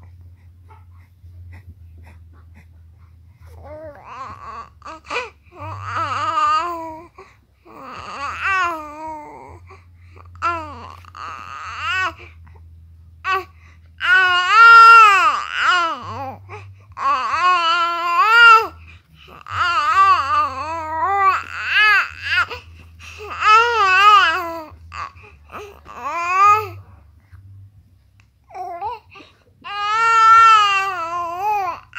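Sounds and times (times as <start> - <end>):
baby crying: 14.0 - 16.4, 17.0 - 22.6, 23.2 - 26.8, 29.6 - 31.9.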